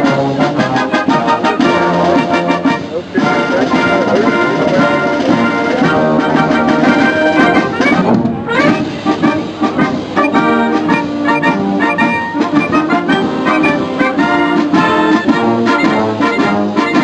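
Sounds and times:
wind band playing: 0.0 - 17.0.

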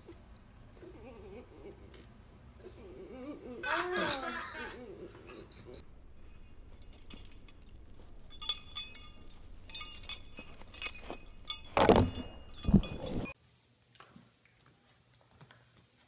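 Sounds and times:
low outdoor rumble: 0.0 - 11.7
dog collar tags jingling: 6.8 - 13.4.

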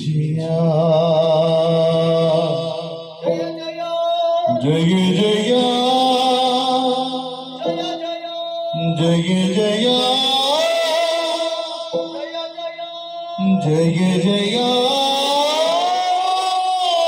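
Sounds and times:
man singing held wavering notes: 0.0 - 17.0.

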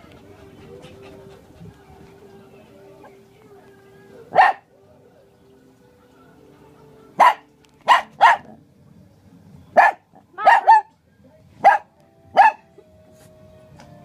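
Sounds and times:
dog play barks: 7.2 - 8.6, 9.8 - 10.9, 11.6 - 12.6.

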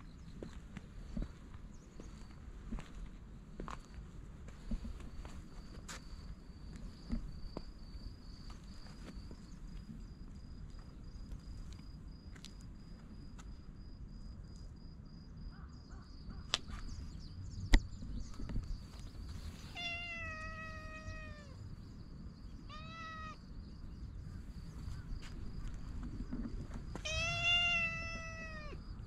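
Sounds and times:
cat meowing: 19.7 - 21.6, 22.7 - 23.4, 27.0 - 28.8.

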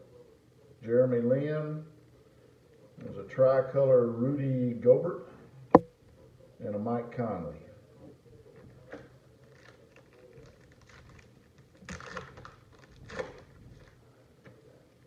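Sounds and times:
foil wrapper crinkling: 9.4 - 14.0.

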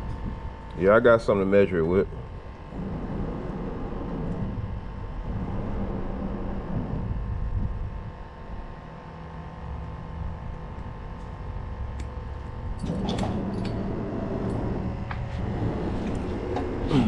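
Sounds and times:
road traffic overhead: 12.0 - 17.0.

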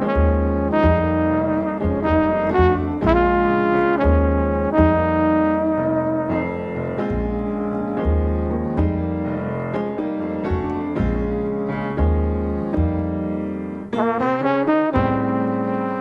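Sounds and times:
trumpet held note: 0.0 - 6.6
bass line: 0.0 - 16.0
jazz piano playing: 0.0 - 16.0.

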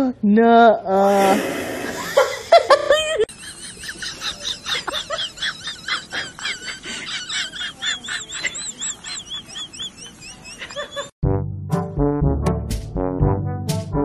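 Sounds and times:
brass music: 11.2 - 14.0.

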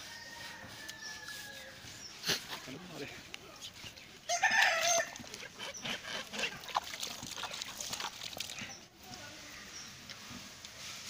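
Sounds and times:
rooster crowing: 0.0 - 1.8, 4.3 - 5.2
muddy water splashing from pipe: 4.5 - 8.9.

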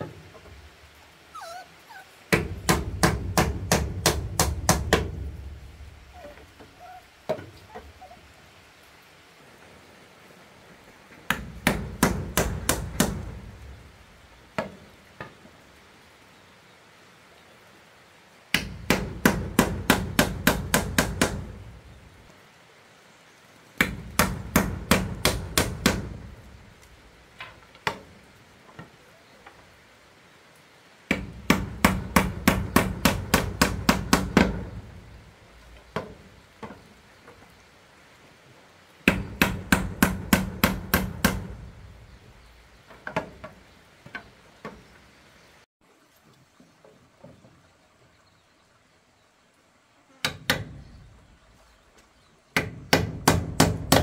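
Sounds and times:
hammering wooden pegs: 2.3 - 5.3, 11.3 - 13.5, 18.5 - 21.6, 23.8 - 26.4, 31.1 - 34.9, 39.0 - 41.7, 52.5 - 54.0.

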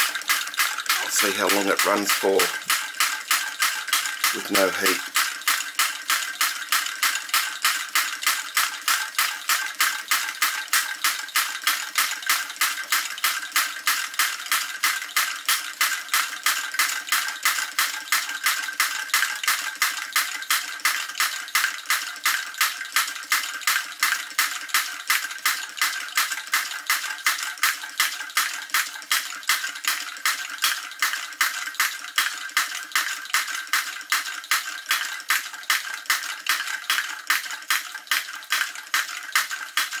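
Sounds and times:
toy drop hammer metallic clacking: 0.0 - 5.6.

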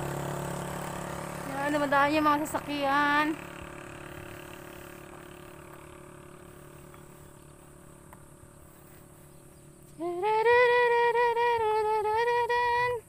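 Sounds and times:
passing vehicle engine and tyres: 0.0 - 12.1
person singing: 10.0 - 13.0.

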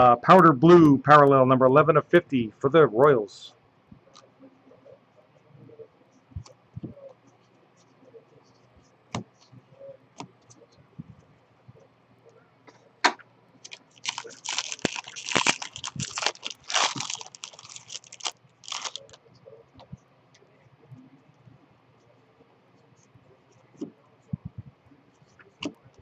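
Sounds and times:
foil wrapper crinkling and tearing: 13.6 - 19.2.

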